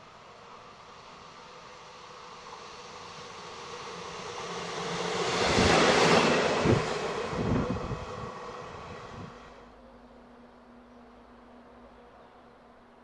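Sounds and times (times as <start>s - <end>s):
train passing at speed: 0.0s - 13.0s
low thumps of train: 2.3s - 9.6s.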